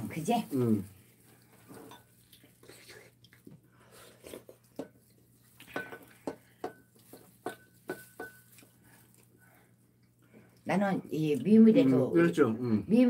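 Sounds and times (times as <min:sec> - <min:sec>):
spoon clinking on ceramic bowl: 0:05.7 - 0:08.6.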